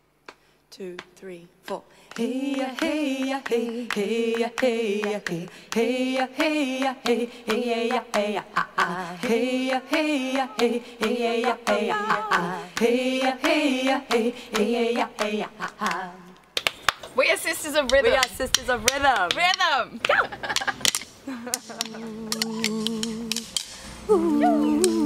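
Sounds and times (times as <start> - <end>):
women singing a cappella: 0.7 - 16.4, 21.4 - 25.0.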